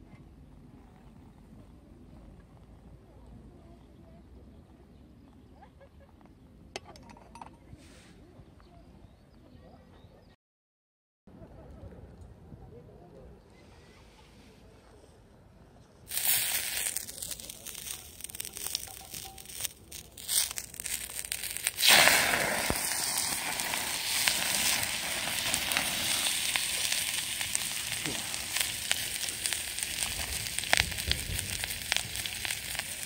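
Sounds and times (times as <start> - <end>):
mushrooms sizzling in oil: 16.1 - 33.0.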